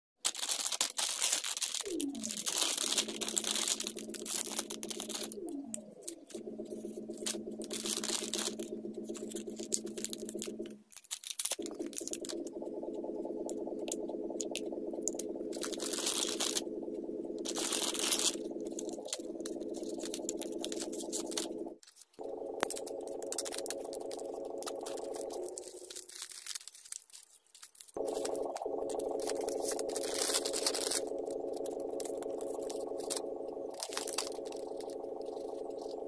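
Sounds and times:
plastic packaging crinkling: 0:00.2 - 0:05.6, 0:07.2 - 0:12.5, 0:19.7 - 0:36.0
drone of held tones: 0:01.8 - 0:10.8, 0:11.6 - 0:26.0, 0:28.0 - 0:36.0.

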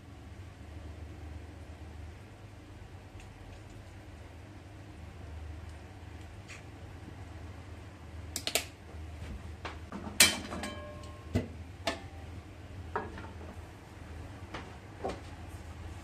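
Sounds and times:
kitchenware clicks and knocks: 0:09.9 - 0:12.1
ringing clink: 0:10.6 - 0:11.3.

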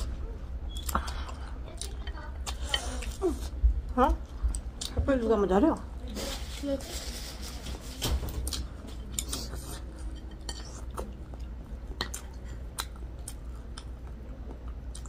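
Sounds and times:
chewing: 0:08.5 - 0:15.0.

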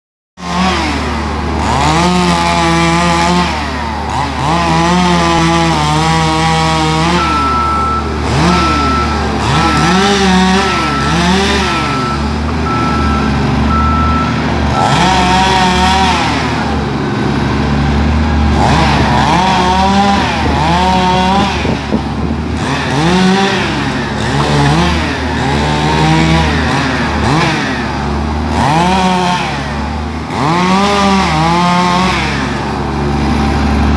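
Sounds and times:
chainsaw revving: 0:00.4 - 0:33.9
regular beeping: 0:07.2 - 0:15.1.

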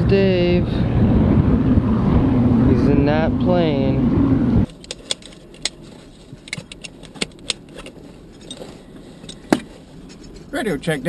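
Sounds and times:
low steady hum: 0:00.0 - 0:11.0
equipment clicks and rattles: 0:04.7 - 0:10.5.

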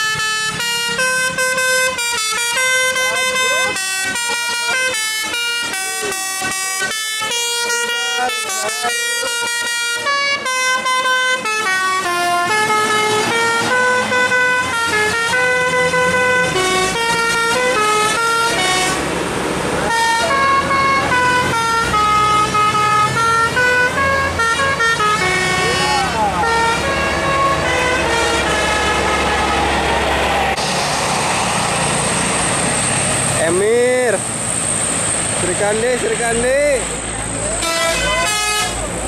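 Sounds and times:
multi-tone air horn melody: 0:00.0 - 0:19.0, 0:19.8 - 0:29.8, 0:37.5 - 0:38.9
bus engine rumbling: 0:00.0 - 0:39.0
rush of noise: 0:28.6 - 0:35.7.

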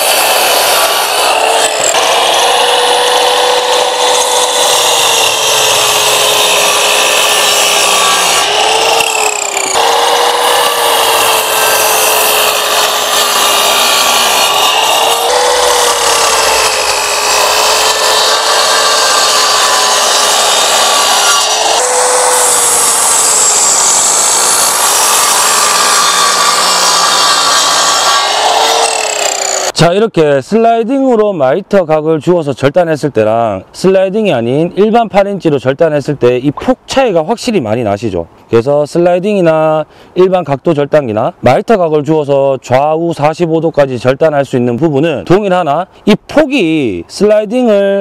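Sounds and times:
miter saw motor whine: 0:00.0 - 0:29.8
saw blade cutting wood: 0:00.0 - 0:29.8.

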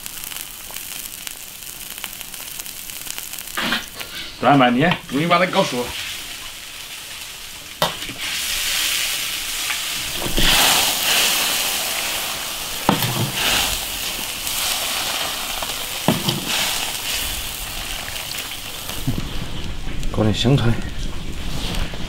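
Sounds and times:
stew sizzling in a pot: 0:00.0 - 0:19.8.

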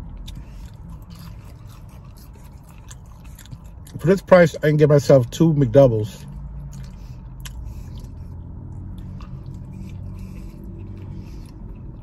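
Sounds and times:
person chewing food: 0:00.0 - 0:04.3, 0:06.2 - 0:12.0
steady low hum: 0:00.0 - 0:12.0
wet mouth clicks: 0:06.6 - 0:08.2.

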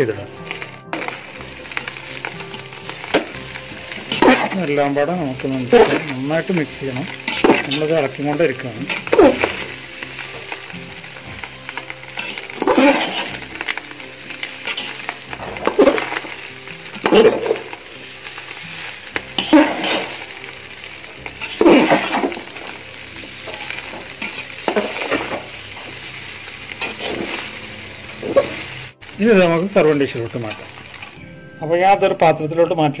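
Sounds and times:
steady sizzle: 0:00.0 - 0:32.3.

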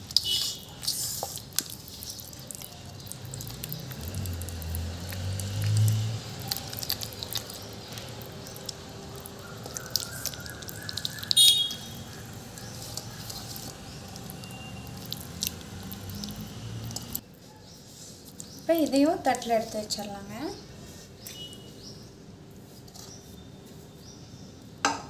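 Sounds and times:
wet clicks and squishes: 0:00.0 - 0:17.3, 0:18.3 - 0:20.1.

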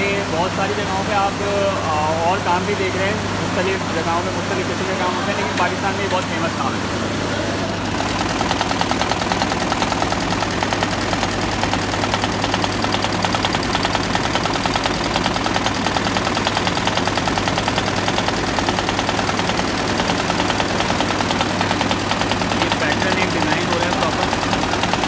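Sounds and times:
steady motor hum: 0:00.0 - 0:25.0
embroidery machine needle clatter: 0:07.7 - 0:25.0.

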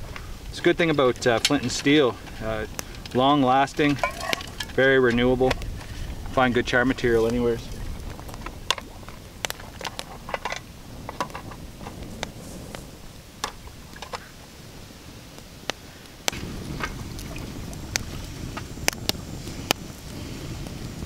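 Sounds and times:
campfire crackling and popping: 0:00.0 - 0:21.0.

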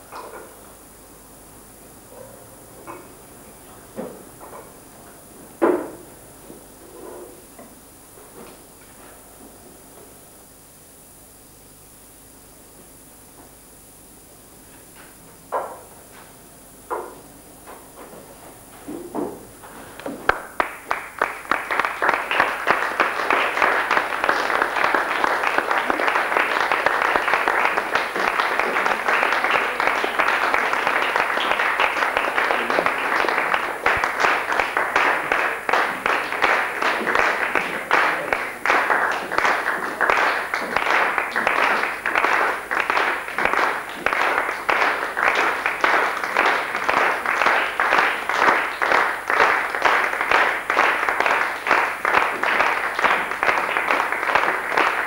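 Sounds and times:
audience applauding: 0:19.8 - 0:55.0
rhythmic clapping in unison: 0:20.0 - 0:55.0.

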